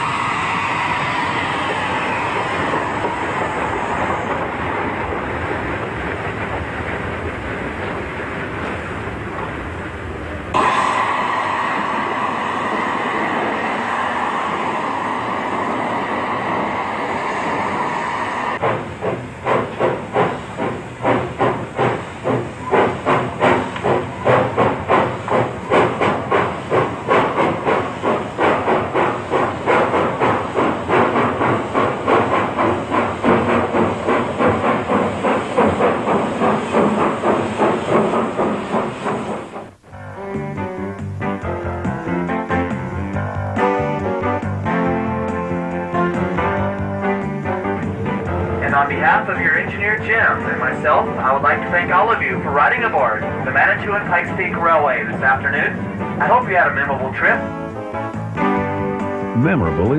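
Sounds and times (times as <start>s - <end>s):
locomotive exhaust chuffing: 0.0s - 59.9s
steam locomotive hissing steam: 0.0s - 59.9s.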